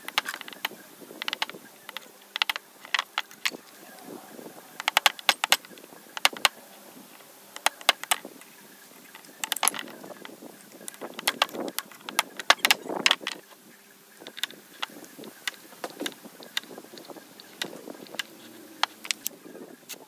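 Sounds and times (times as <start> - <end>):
rubbing noises: 0.0 - 20.0
wood and metal knocking: 4.8 - 6.5, 9.2 - 10.2, 10.9 - 13.4, 14.2 - 19.3.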